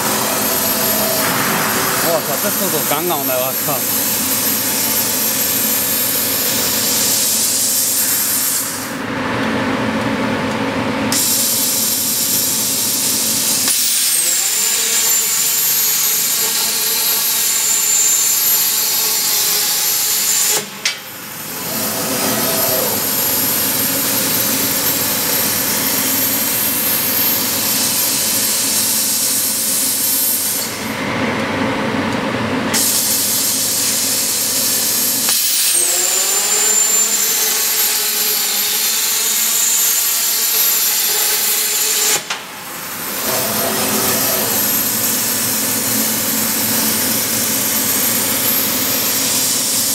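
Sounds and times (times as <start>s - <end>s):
plasma torch hissing: 0.1s - 4.2s
low mechanical machine sound: 42.6s - 49.5s.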